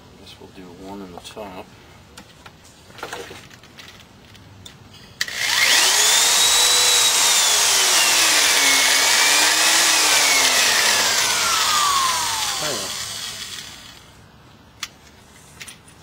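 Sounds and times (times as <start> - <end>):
electric drill cutting metal can: 5.2 - 14.0.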